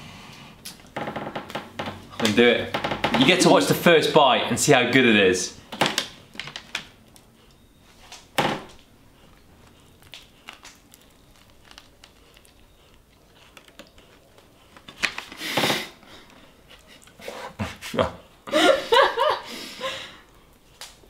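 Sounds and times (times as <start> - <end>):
paper wrapper crinkling: 9.9 - 15.4.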